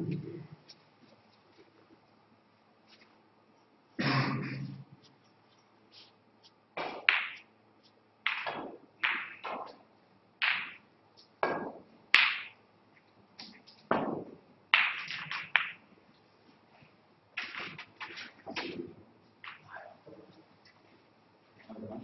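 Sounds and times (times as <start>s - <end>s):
knocks and taps on snooker table: 6.8s - 7.4s, 8.2s - 9.8s, 11.4s - 12.6s, 13.4s - 15.8s
snooker balls knocking together: 6.8s - 7.5s, 8.2s - 12.6s, 13.4s - 15.8s, 17.4s - 20.1s
cue striking cue ball: 11.4s - 12.5s.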